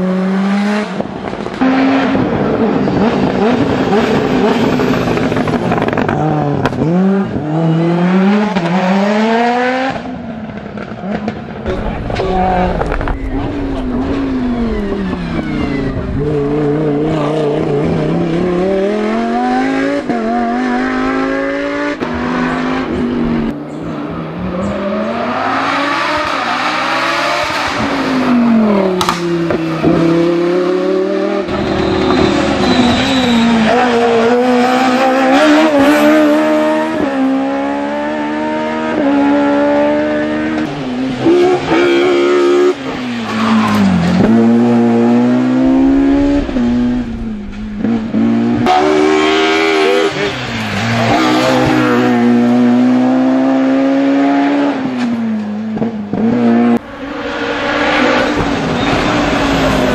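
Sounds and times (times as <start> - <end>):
race car engine revving: 0.0 - 59.9
exhaust crack: 10.5 - 23.5, 43.7 - 52.4.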